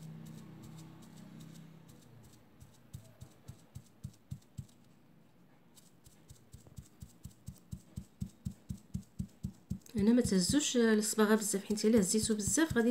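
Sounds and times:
sponge dabbing on fabric: 0.0s - 5.0s, 5.6s - 12.9s.

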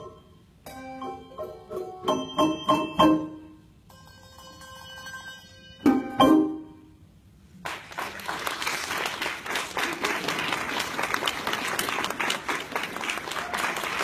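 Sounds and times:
handbell chord: 0.0s - 6.8s
audience applauding: 7.6s - 14.0s.

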